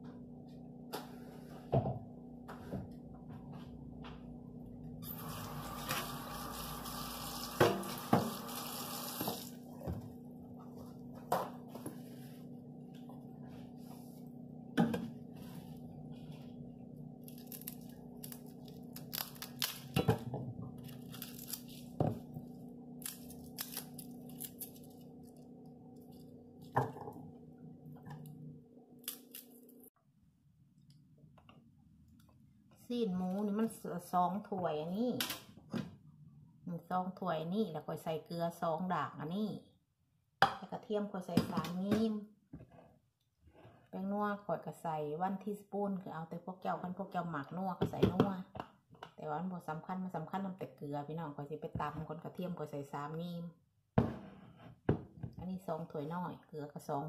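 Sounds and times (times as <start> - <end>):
steady low hum: 9.6 - 29.9
items knocking on counter: 54.0 - 54.3.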